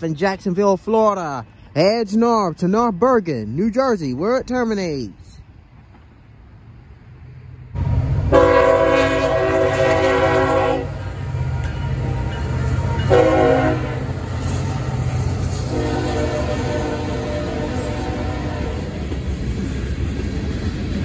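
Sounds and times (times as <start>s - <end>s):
rumble of passing train: 0.0s - 21.0s
locomotive horn blasts: 8.3s - 11.0s, 11.9s - 14.2s, 15.7s - 19.0s.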